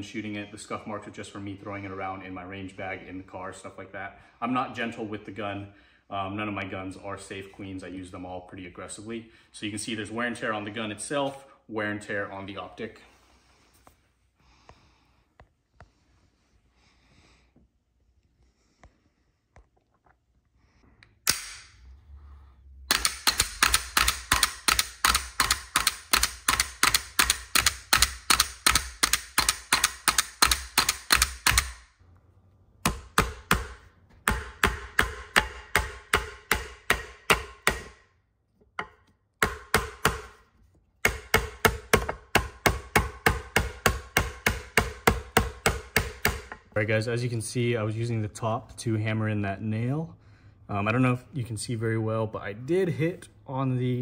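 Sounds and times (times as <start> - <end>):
hammering nail into wood: 22.9 - 31.9, 32.8 - 38.1, 38.8 - 46.7.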